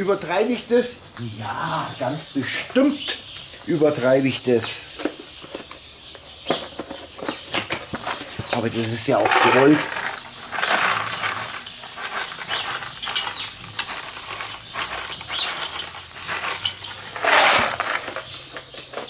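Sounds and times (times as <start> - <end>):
wood chips rattling onto charcoal: 6.5 - 19.0.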